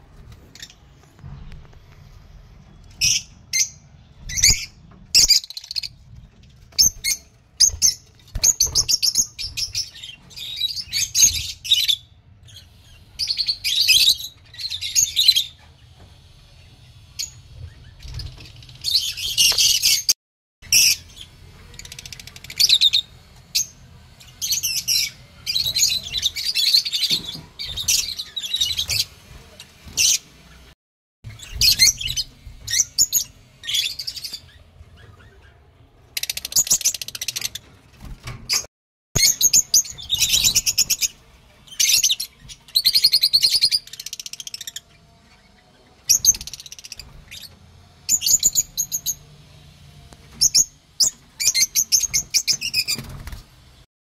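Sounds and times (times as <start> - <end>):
lovebirds chirping: 16.5 - 37.7.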